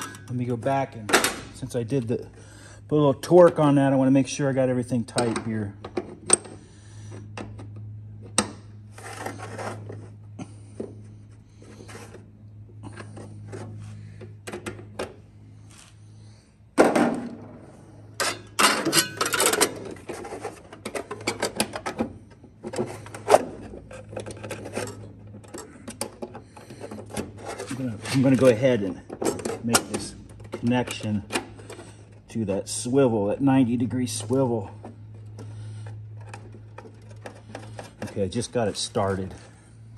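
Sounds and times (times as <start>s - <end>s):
low steady hum: 0.0s - 39.9s
small metal clicks and clanks: 18.2s - 22.0s.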